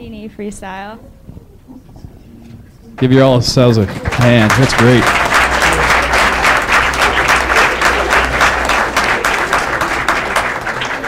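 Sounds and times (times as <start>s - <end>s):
crowd applauding: 3.0s - 11.0s.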